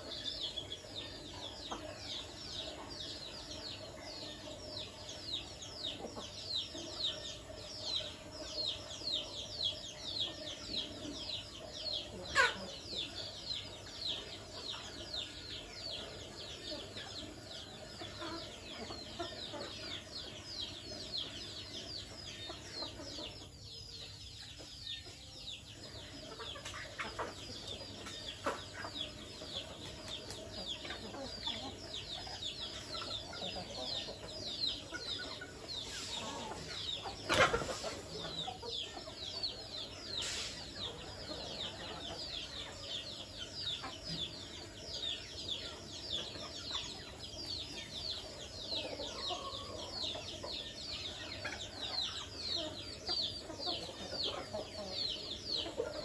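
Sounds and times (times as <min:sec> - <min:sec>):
hens clucking: 0:00.0 - 0:56.0.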